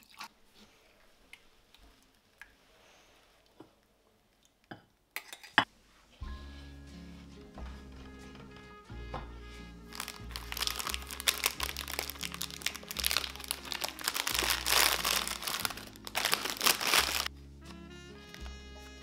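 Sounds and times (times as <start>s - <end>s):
soft background music: 5.8s - 19.0s
plastic wrapping crinkling: 9.9s - 17.3s.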